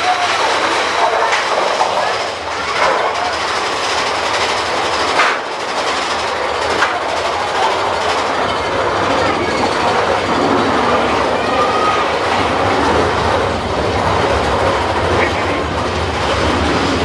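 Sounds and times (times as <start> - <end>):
roller coaster rumble and rattle: 0.0 - 17.0
sharp track clacks: 0.0 - 17.0.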